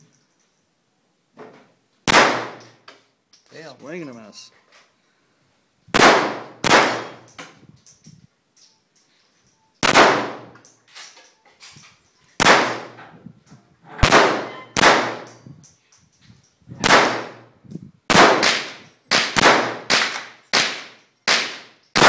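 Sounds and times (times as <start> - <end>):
pistol shots with echo: 2.1 - 2.7, 6.0 - 7.2, 9.8 - 10.6, 12.4 - 13.0, 14.0 - 15.4, 16.8 - 17.5, 18.1 - 22.0.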